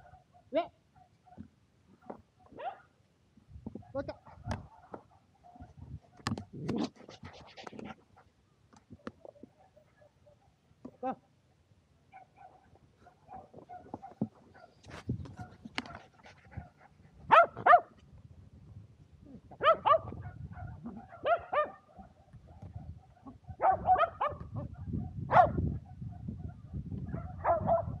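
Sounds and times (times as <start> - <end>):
dog barking high-pitched: 2.5 - 2.9, 17.3 - 17.9, 19.6 - 22.2, 23.1 - 28.0.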